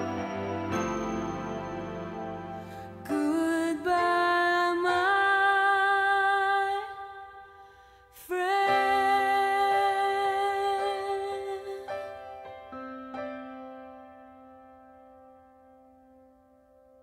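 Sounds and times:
slow tender song: 0.0 - 17.0.

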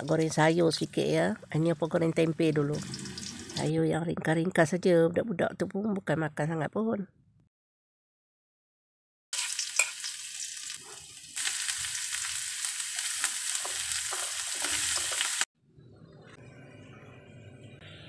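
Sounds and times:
oil sizzling in a wok: 2.4 - 3.7, 9.3 - 15.5
metal spatula scraping a pan: 9.4 - 10.1.

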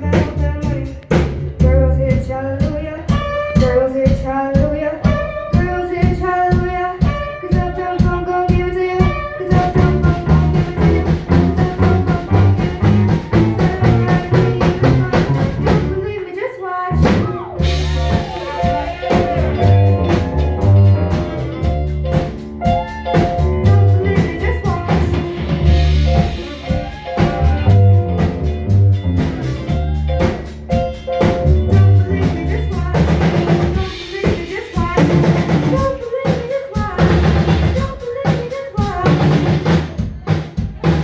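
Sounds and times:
drum kit beat: 0.0 - 16.3, 16.9 - 41.0
electric guitars: 16.9 - 33.8.

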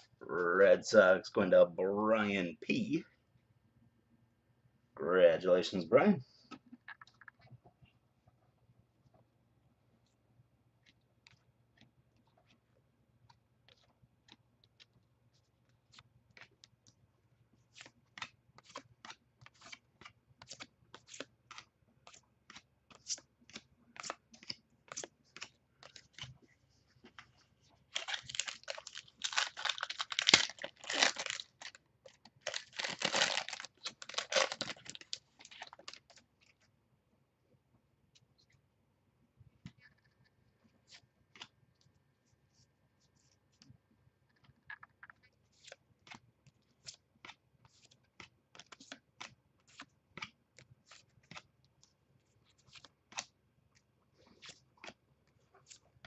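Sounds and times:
trading cards flipping: 17.7 - 26.4
card pack wrapper tearing: 27.9 - 31.8, 32.4 - 36.2.

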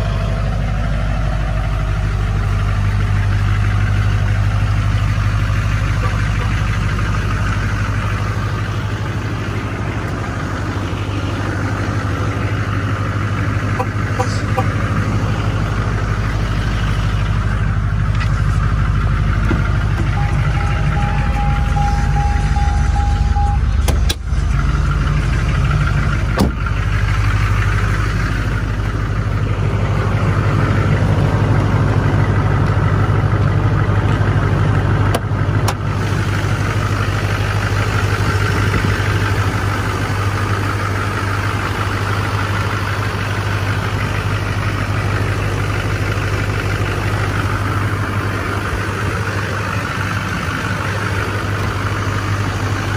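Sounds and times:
diesel engine idling: 0.0 - 52.9.

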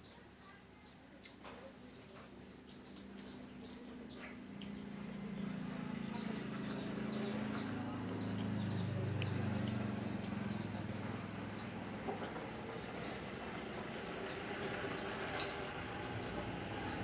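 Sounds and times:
small birds chirping: 0.0 - 17.0
low engine drone: 4.4 - 17.0.

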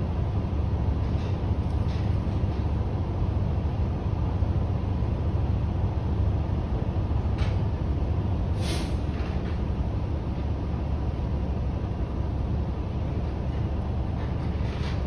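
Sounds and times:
short hiss: 8.6 - 9.0.

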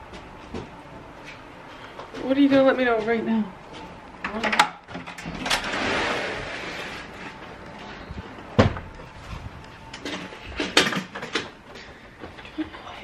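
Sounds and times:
heavy thump: 8.6 - 8.9.

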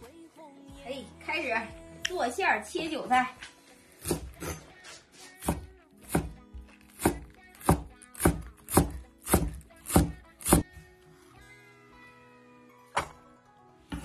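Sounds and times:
background music: 0.0 - 14.0
cleaver chopping on wooden board: 4.0 - 4.5, 5.4 - 6.4, 7.0 - 10.7.

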